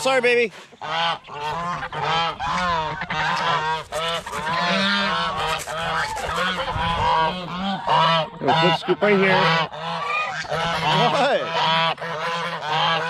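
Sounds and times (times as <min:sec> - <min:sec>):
geese honking: 0:00.0 - 0:13.0.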